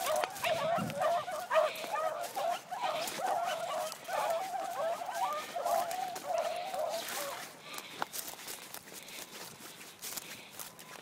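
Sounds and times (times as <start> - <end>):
hounds baying: 0.0 - 7.9.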